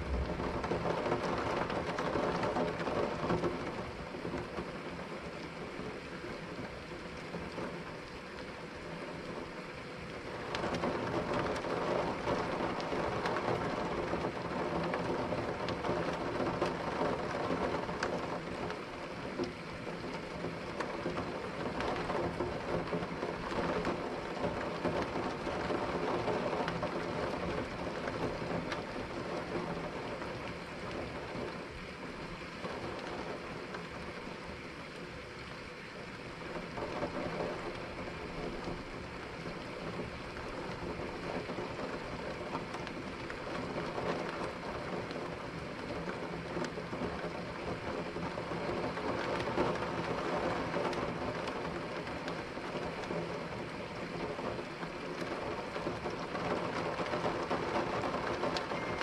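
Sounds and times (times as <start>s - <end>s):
rolling thunder: 0.0s - 2.8s
steady rain: 0.0s - 59.0s.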